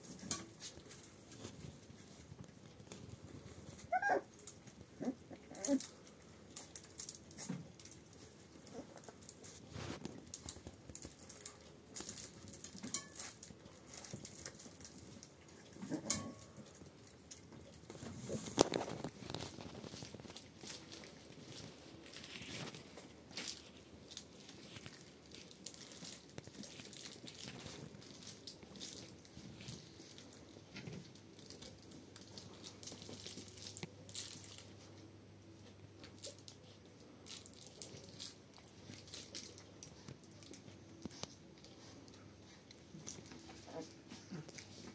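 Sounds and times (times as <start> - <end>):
puppies pattering and rustling: 0.0 - 44.9
puppy squeaks: 3.9 - 4.2.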